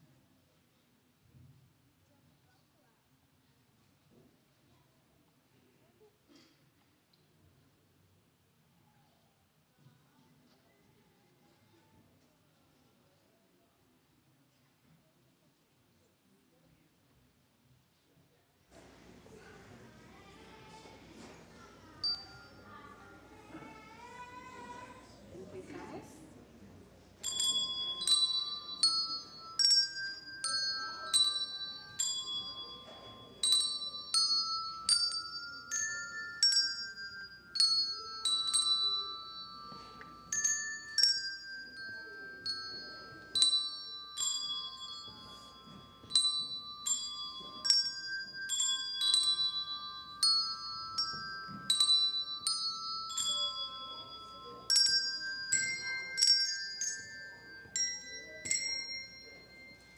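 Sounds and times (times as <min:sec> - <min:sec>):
handbell choir ringing: 0:20.6 - 0:25.1, 0:27.1 - 0:59.9.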